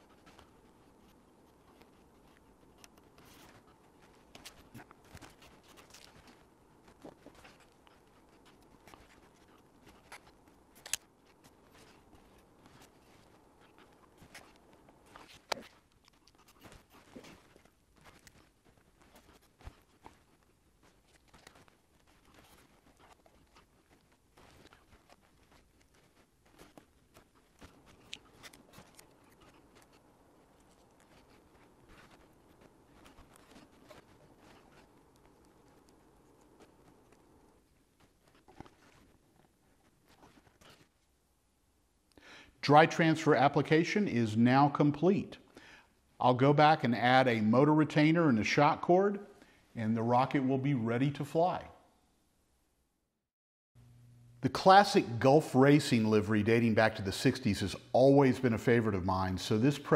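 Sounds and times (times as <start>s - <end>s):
soft clicks and scratchy ticks: 0.0s - 41.1s.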